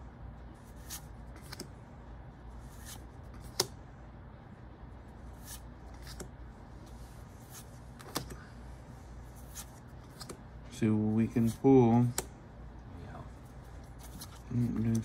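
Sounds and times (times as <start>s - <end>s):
low steady hum: 0.0s - 15.0s
cards sliding papery swish: 2.6s - 3.7s, 5.3s - 6.3s, 6.9s - 8.4s, 9.2s - 10.4s.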